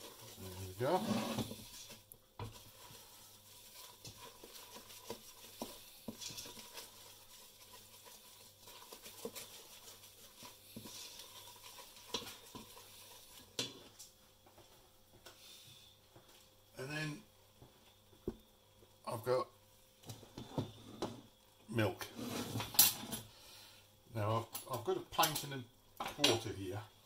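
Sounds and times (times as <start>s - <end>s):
wooden spoon scraping saucepan: 0.0s - 14.1s, 22.0s - 23.3s.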